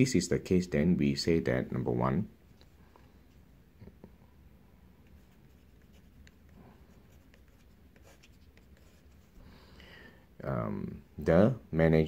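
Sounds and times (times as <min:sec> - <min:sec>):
pen nib scratching on paper: 0:05.0 - 0:09.3.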